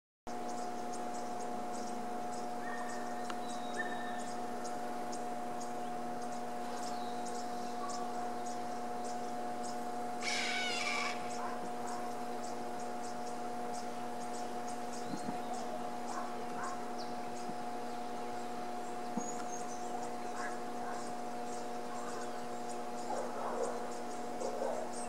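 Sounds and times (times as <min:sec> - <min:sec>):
insects chirping: 0:00.3 - 0:25.0
steady hum: 0:00.3 - 0:25.0
hawk alarm call: 0:10.2 - 0:12.2.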